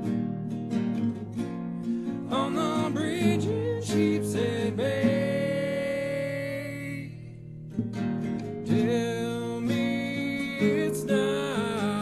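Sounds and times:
acoustic guitar: 0.0 - 12.0
person singing: 2.2 - 7.3, 8.7 - 12.0.

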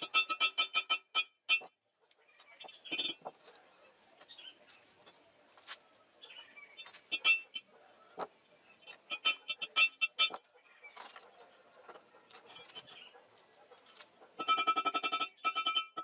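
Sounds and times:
metal bars clinking: 2.4 - 5.3, 6.8 - 7.7, 8.8 - 13.1.

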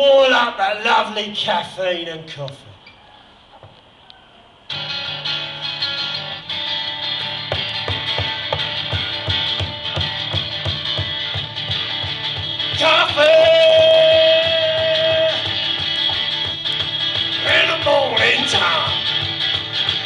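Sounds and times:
acoustic guitar strumming blues: 4.7 - 20.0.

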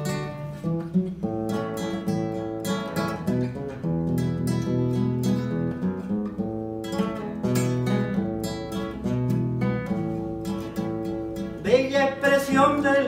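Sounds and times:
acoustic guitar strumming: 0.0 - 13.0
man singing: 11.6 - 13.0.

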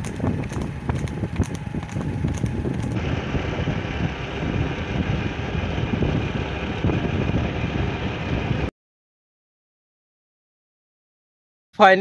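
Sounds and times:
motorcycle engine droning: 0.0 - 8.7
wind buffeting microphone: 0.0 - 8.7.

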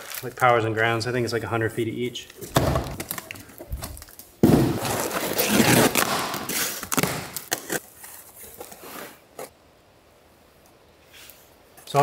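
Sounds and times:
cardboard rustling and crinkling: 2.4 - 9.5.

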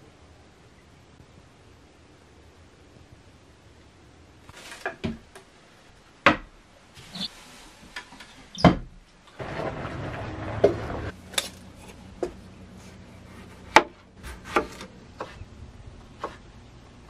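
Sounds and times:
wooden knocks and clatters: 8.6 - 11.1.

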